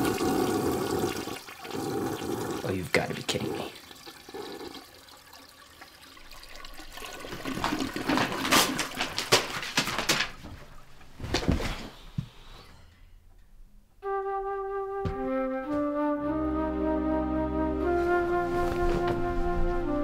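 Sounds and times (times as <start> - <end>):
paper and packing material rustling: 7.4 - 12.0, 17.9 - 19.7
flute music: 14.0 - 20.0.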